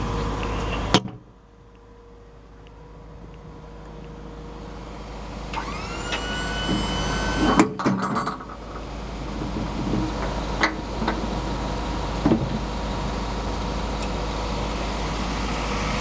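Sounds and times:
hydraulic pump whining: 5.3 - 8.9
loud metal clunk: 6.7 - 8.6.

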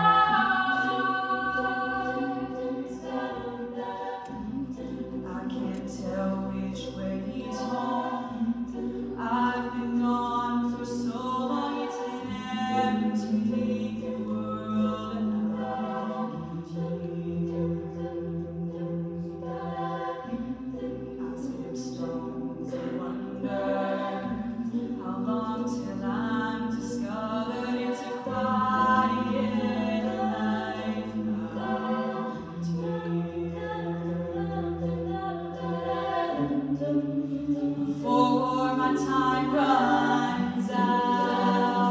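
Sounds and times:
backing vocal chords: 0.0 - 41.9
lead singing voice: 0.0 - 41.9
vocal bass line: 0.0 - 41.9.

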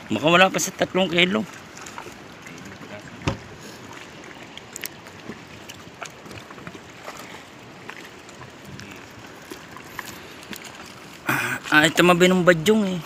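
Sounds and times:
water lapping against boat: 0.0 - 13.0.

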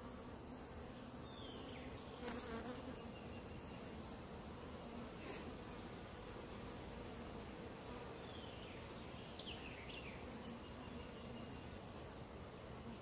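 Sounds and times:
honeybees buzzing: 0.0 - 13.0.

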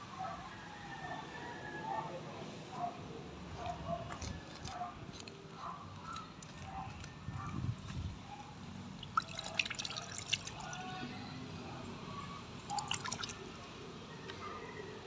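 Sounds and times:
water dripping and splashing: 9.0 - 10.8, 12.6 - 13.4.

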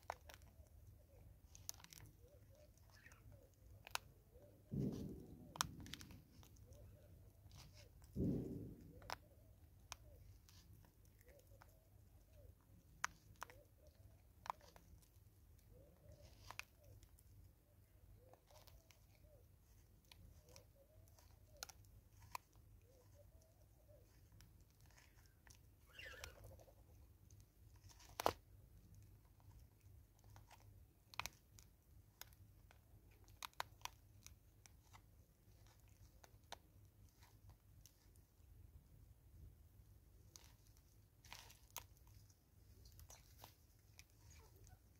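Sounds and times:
clicks and crackles of plastic bottle: 0.0 - 15.2
monkey crunching and chewing: 0.0 - 17.4, 18.2 - 38.2.

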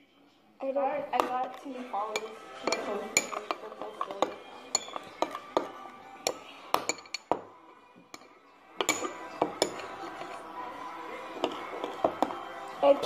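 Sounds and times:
faint music: 0.0 - 13.0
metal spoon clinking on ceramic bowl: 1.2 - 7.4, 8.1 - 10.0.

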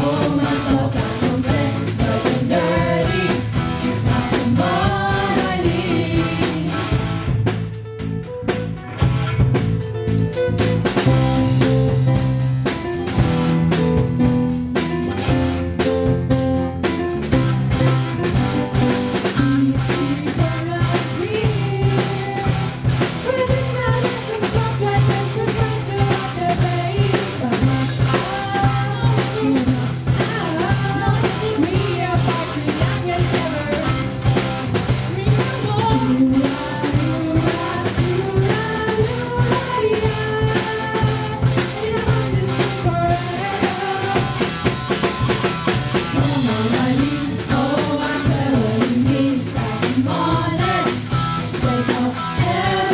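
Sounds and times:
person singing: 0.0 - 7.0, 35.1 - 44.5, 46.2 - 52.9
bass guitar: 0.0 - 52.9
drum kit: 0.0 - 52.9
electric and acoustic guitars: 0.0 - 52.9.

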